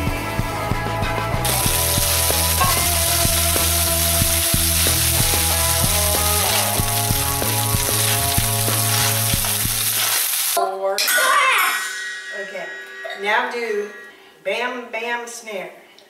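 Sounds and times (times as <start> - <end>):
background music with steady beat: 0.0 - 9.8
rice sizzling in a hot pan: 1.4 - 10.6
wooden spoon stirring: 3.8 - 10.6.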